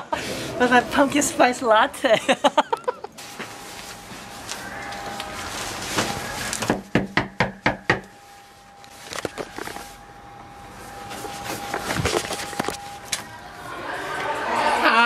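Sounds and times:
handling sounds: 2.6 - 13.4
knocking on door: 6.7 - 8.0.

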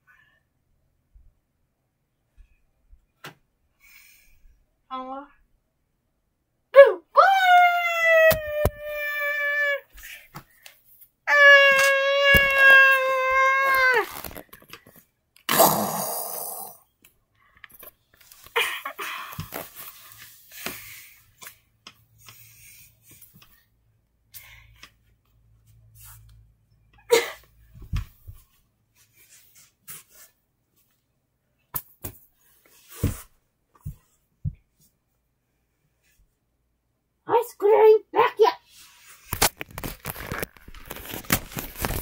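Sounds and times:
child wailing: 6.8 - 9.9, 11.3 - 14.1.

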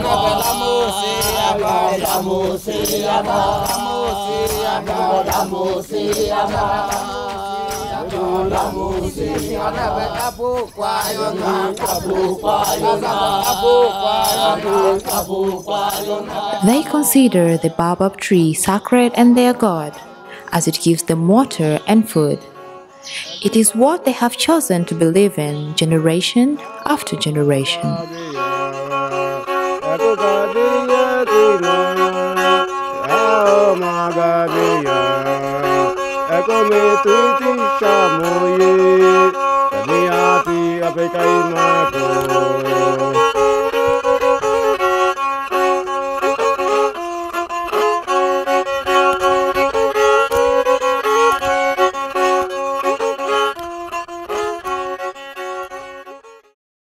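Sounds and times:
sustained drone notes: 0.0 - 44.9
bowed fiddle melody: 0.0 - 56.6.

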